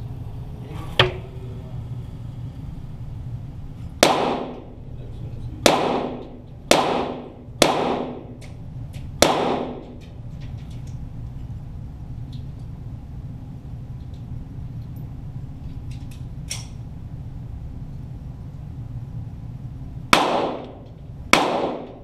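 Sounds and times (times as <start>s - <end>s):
pistol shots echoing: 4.0s - 4.7s, 5.6s - 8.4s, 9.2s - 10.0s, 20.1s - 22.0s.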